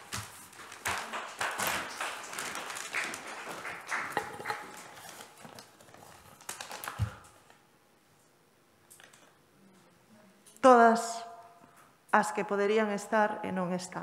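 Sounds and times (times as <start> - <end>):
paper bag crinkling: 0.0 - 7.6.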